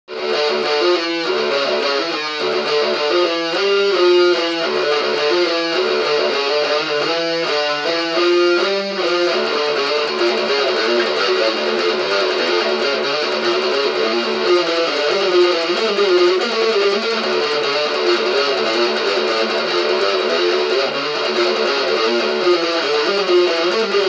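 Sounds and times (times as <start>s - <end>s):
electric guitar riff: 0.1s - 24.0s.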